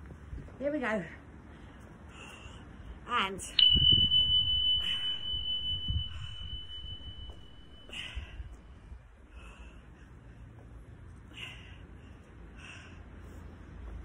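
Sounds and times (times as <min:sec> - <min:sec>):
high-pitched electronic beep: 0:03.6 - 0:08.2.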